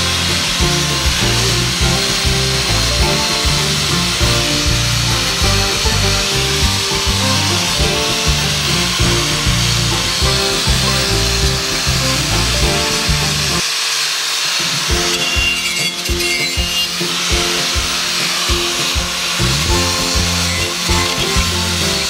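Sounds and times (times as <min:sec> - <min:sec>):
background music: 0:00.0 - 0:13.6, 0:14.8 - 0:22.0
angle grinder grinding metal: 0:00.0 - 0:22.0.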